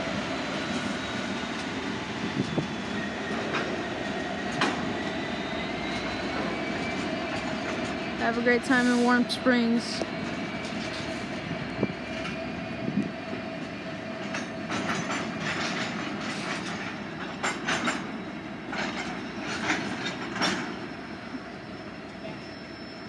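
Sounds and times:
train wheels rumbling on rail: 0.0 - 23.0
train wheel clacks: 3.3 - 11.2, 12.0 - 21.0.

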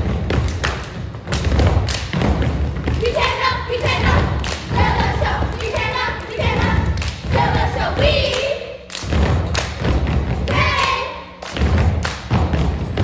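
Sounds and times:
group of voices chanting: 3.0 - 8.9.

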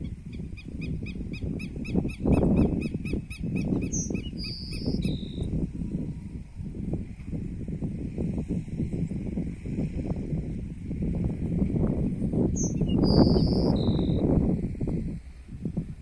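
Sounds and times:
bird singing clear notes: 0.6 - 5.5, 12.6 - 14.2.

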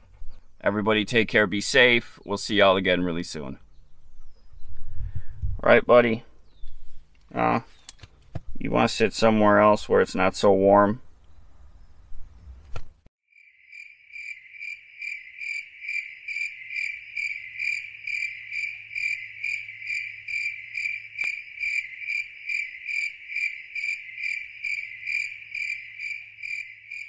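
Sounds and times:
insect chirping: 13.3 - 27.0.

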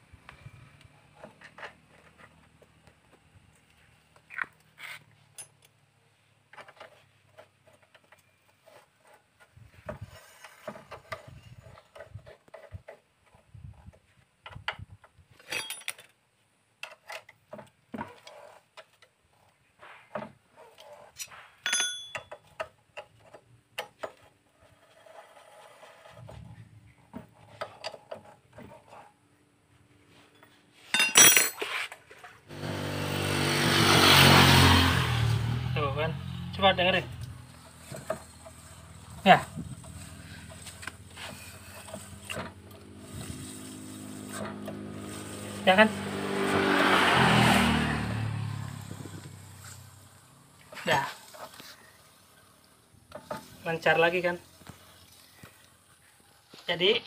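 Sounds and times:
socket wrench metal clinks: 21.6 - 22.5, 31.0 - 31.6.

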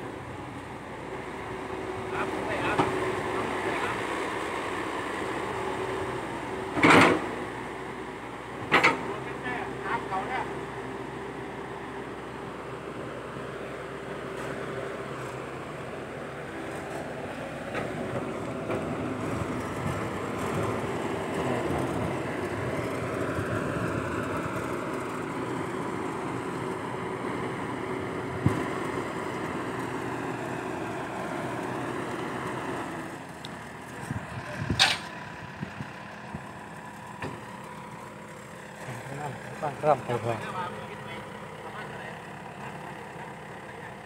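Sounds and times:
excavator digging in soil: 33.3 - 35.9.

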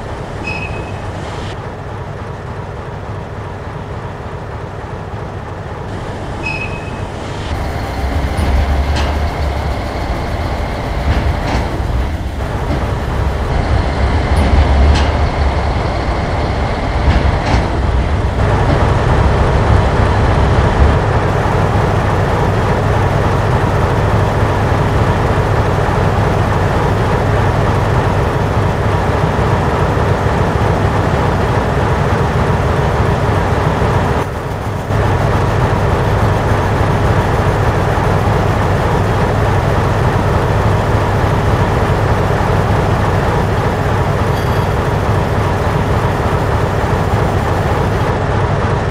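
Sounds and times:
model locomotive rumble: 1.6 - 48.9
clicks of model train: 8.2 - 13.5, 34.2 - 35.3.

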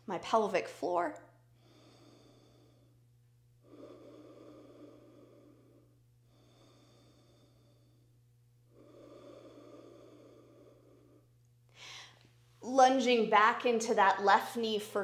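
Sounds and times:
steady low hum: 0.0 - 15.0
slow breathing: 1.4 - 12.4.

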